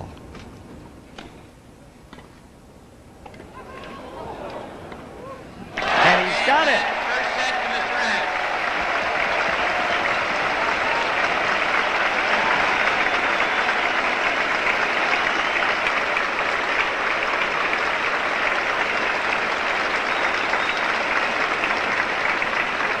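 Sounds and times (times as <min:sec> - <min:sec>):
crowd applauding: 0:05.8 - 0:23.0.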